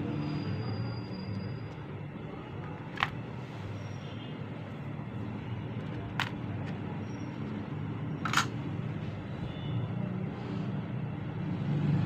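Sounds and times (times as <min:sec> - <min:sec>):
keypad parts clicking: 0:05.8 - 0:06.8, 0:08.2 - 0:08.6.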